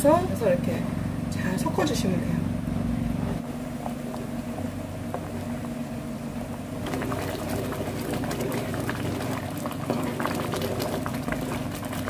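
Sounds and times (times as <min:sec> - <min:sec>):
steady low hum: 0:00.0 - 0:12.0
porridge bubbling and popping: 0:03.4 - 0:12.0
wooden spatula stirring: 0:06.8 - 0:12.0.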